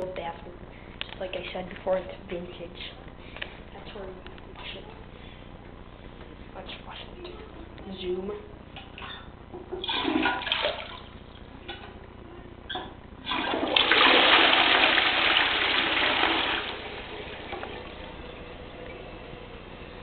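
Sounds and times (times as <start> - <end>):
toilet flushing water rush: 9.8 - 11.1, 13.2 - 19.2
toilet flush click: 13.2 - 17.9.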